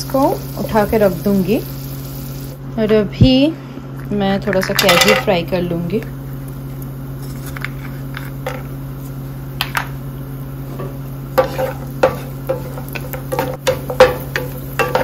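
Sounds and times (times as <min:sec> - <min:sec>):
nuts frying in oil with pops: 0:00.0 - 0:02.6, 0:10.7 - 0:15.0
steady low hum: 0:00.0 - 0:15.0
spatula scraping pan: 0:10.8 - 0:15.0.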